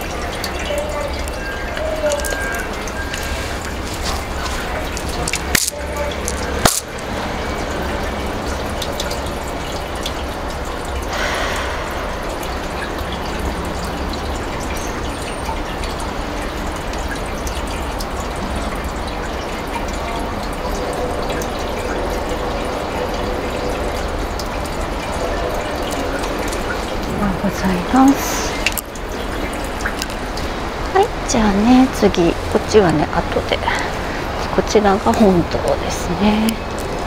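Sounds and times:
water running into stone basin: 0:00.0 - 0:37.0
low hum: 0:10.7 - 0:14.7.

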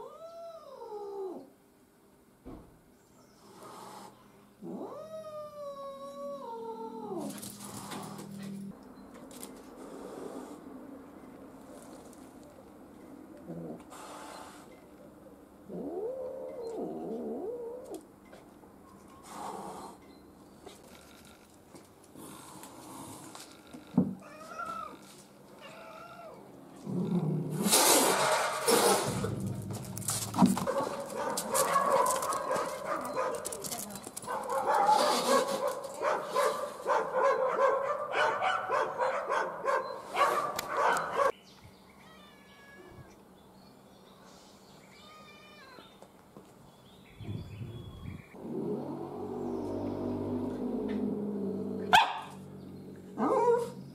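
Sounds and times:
cat yowling: 0:45.0 - 0:45.9
small dog yapping: 0:51.9 - 0:52.4.

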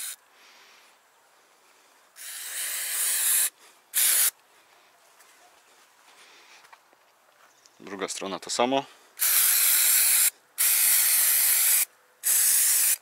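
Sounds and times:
aerosol can spraying: 0:02.2 - 0:04.4, 0:09.2 - 0:13.0.

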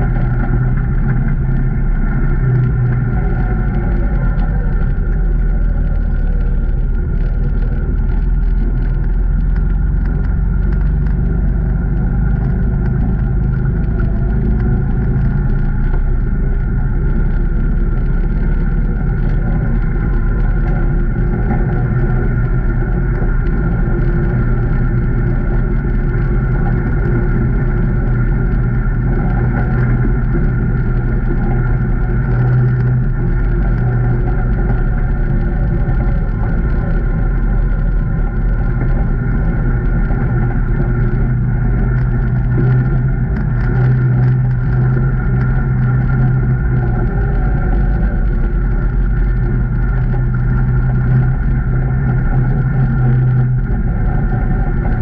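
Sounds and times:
engine running steadily: 0:00.0 - 0:55.0.

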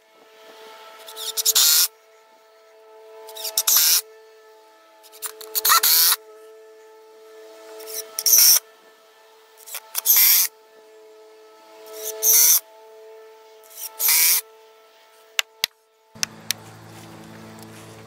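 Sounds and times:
power drill whirring: 0:03.3 - 0:04.0, 0:05.2 - 0:06.2, 0:07.8 - 0:08.6, 0:09.6 - 0:10.5, 0:13.7 - 0:14.4.

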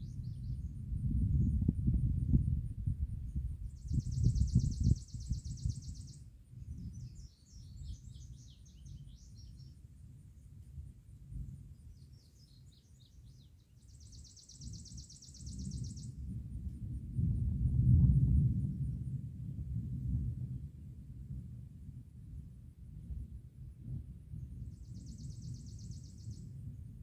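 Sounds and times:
songbird trilling and twittering: 0:03.6 - 0:06.2, 0:06.9 - 0:09.8, 0:11.9 - 0:16.2, 0:24.7 - 0:26.5.

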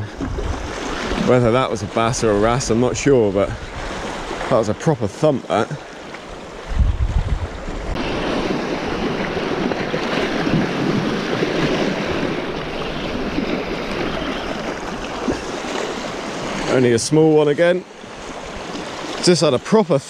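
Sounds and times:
wind buffeting microphone: 0:00.0 - 0:04.5, 0:06.3 - 0:16.7
sea waves washing against rocks: 0:00.0 - 0:20.0.

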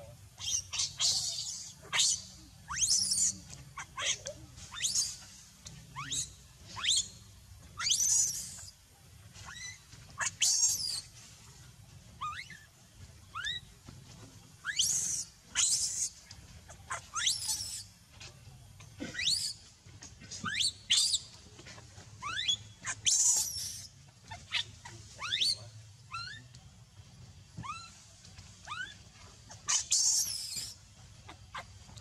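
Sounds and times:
infant monkey shrieking: 0:00.4 - 0:05.3, 0:06.0 - 0:07.1, 0:07.8 - 0:08.7, 0:09.4 - 0:11.1, 0:12.2 - 0:12.6, 0:13.3 - 0:13.7, 0:14.6 - 0:16.2, 0:16.9 - 0:17.8, 0:19.0 - 0:19.6, 0:22.2 - 0:26.4, 0:27.6 - 0:28.0, 0:28.6 - 0:30.8.

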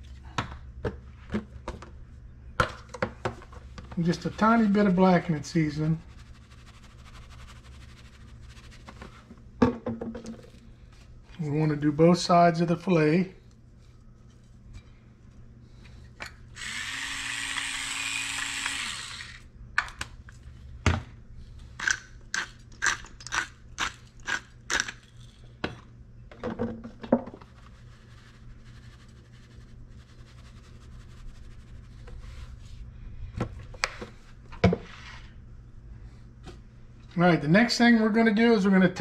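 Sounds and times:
electric pepper mill grinding: 0:16.5 - 0:19.5.

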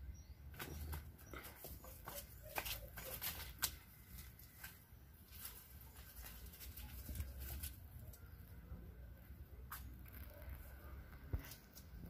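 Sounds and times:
leaves rustling and crackling: 0:02.6 - 0:08.5.

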